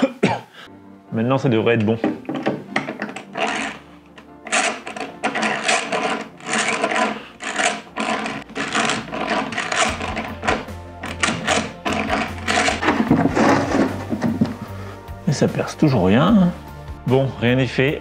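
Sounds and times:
background music: 0.0s - 18.0s
hand drill rasping: 2.8s - 14.6s.

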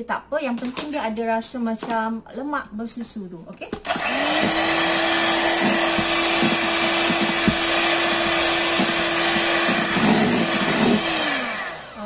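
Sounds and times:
electric hand mixer running: 3.8s - 12.0s.

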